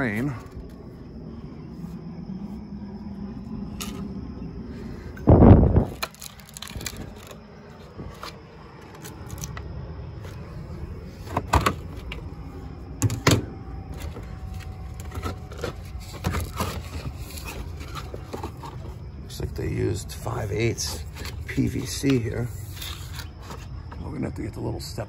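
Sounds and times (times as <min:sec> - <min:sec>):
low steady rumble: 0:00.0 - 0:25.0
plastic scrapes and clicks: 0:14.0 - 0:18.9.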